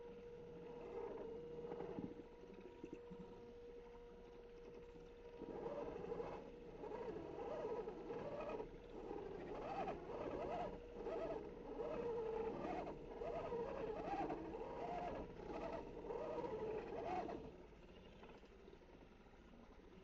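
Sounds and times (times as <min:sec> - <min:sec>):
rc car motor whining: 0:05.5 - 0:17.5.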